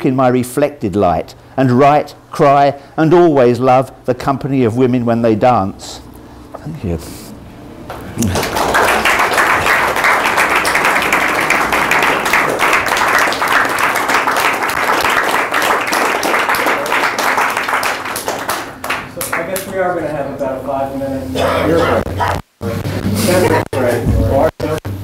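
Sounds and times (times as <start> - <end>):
audience applauding: 7.9 - 19.8.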